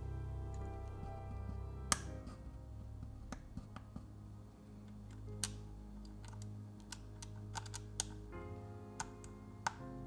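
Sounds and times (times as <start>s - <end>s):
soft background music: 0.0s - 10.0s
connectors clicking into place: 1.9s - 2.3s, 4.9s - 8.3s, 9.0s - 9.8s.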